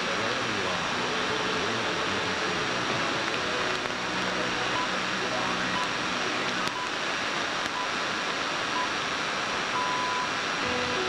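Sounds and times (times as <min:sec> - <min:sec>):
radio static and hiss: 0:00.0 - 0:11.0
time signal pips: 0:04.4 - 0:06.9, 0:09.8 - 0:11.0.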